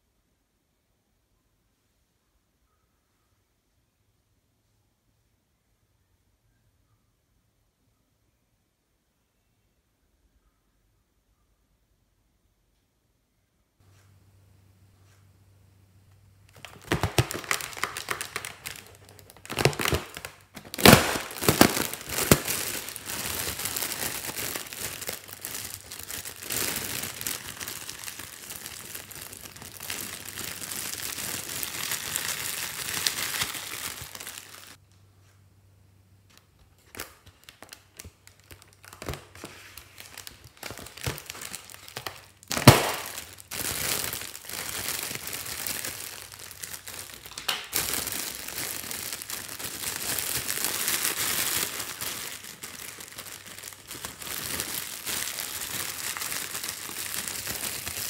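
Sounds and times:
metallic foil crinkling: 0:16.5 - 0:34.8, 0:36.4 - 0:58.0.

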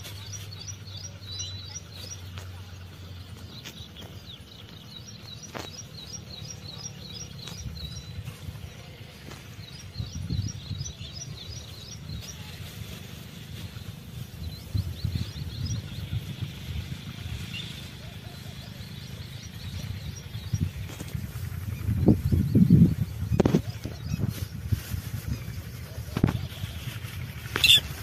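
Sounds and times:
small bird chirping: 0:00.0 - 0:28.0.

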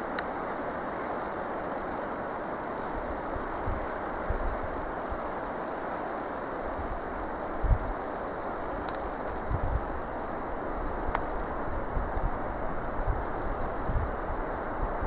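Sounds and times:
wind on microphone: 0:02.8 - 0:05.6, 0:06.6 - 0:15.0.

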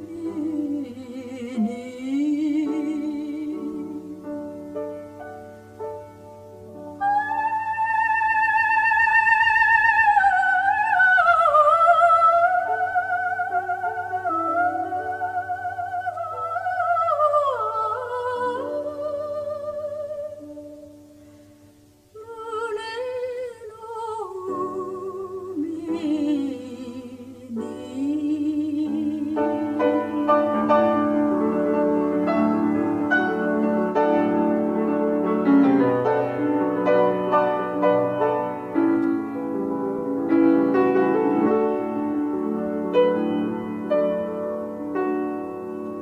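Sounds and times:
woman singing with vibrato: 0:00.0 - 0:04.4, 0:07.0 - 0:21.1, 0:22.1 - 0:38.1
piano chords: 0:00.0 - 0:22.2, 0:24.2 - 0:46.0.

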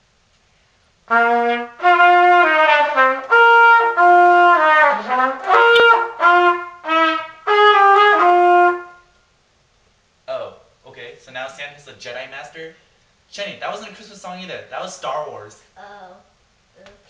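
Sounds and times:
trumpet playing slow melody: 0:01.1 - 0:09.2.

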